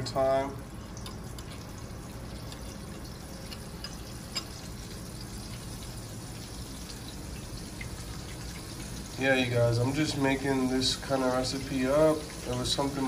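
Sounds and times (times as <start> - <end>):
cutlet sizzling in hot oil: 0.0 - 13.0.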